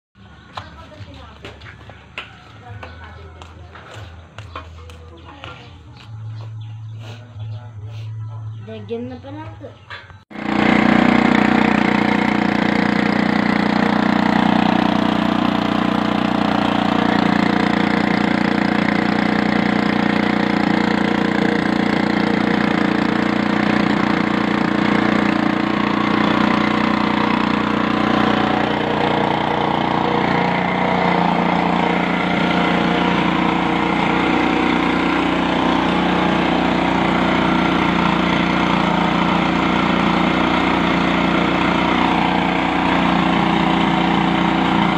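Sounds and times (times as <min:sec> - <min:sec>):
small water pump engine running: 0:10.3 - 0:44.9.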